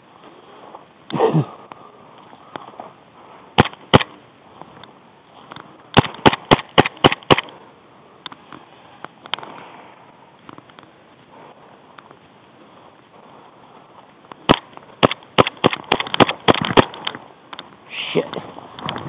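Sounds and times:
airsoft gun shots: 0:03.6 - 0:04.2, 0:06.0 - 0:07.5, 0:14.5 - 0:17.1.

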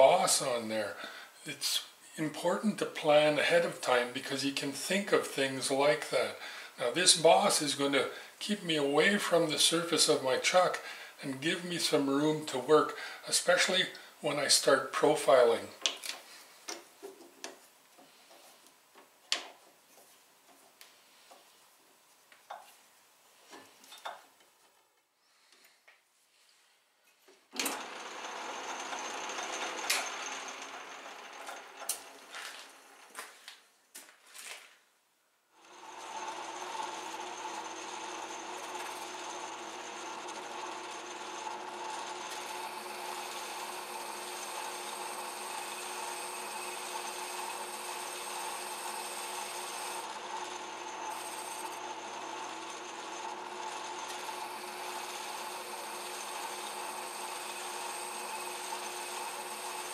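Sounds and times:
metal lathe running and cutting: 0:27.6 - 0:33.1, 0:35.6 - 0:59.9.

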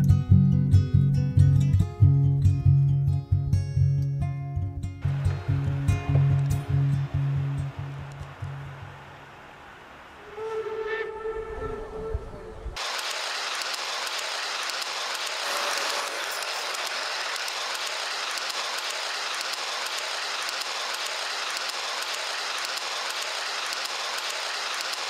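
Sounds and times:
fast mechanical clicking rattle: 0:12.8 - 0:25.0
hiss: 0:12.8 - 0:25.0.

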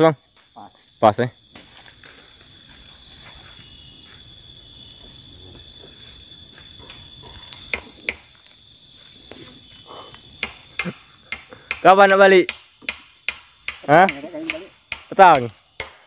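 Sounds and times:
insects droning: 0:00.0 - 0:16.0
sharp knocks: 0:10.4 - 0:16.0.

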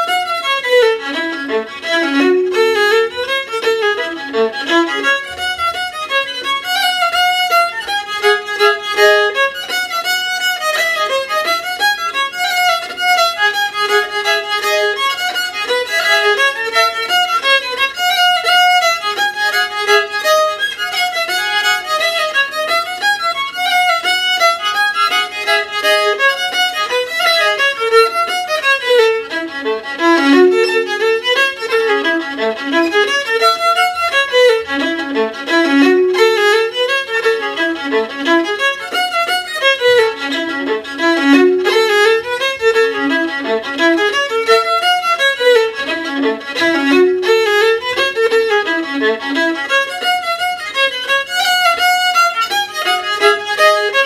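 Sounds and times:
solo fiddle tune: 0:00.0 - 0:54.0.

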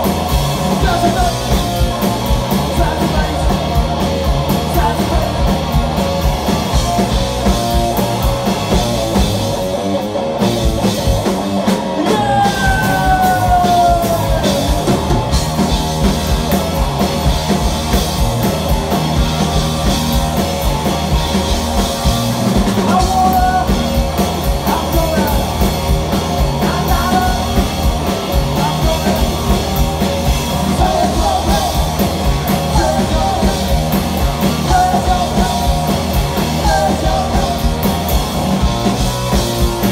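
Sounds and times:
drums: 0:00.0 - 0:39.9
electric guitar: 0:00.0 - 0:39.9
person yelling vocals: 0:11.9 - 0:14.9.

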